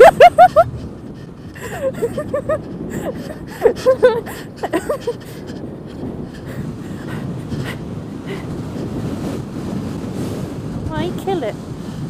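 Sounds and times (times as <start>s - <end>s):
high-pitched breathless laughing: 0.0s - 8.6s
wind on microphone: 0.0s - 12.0s.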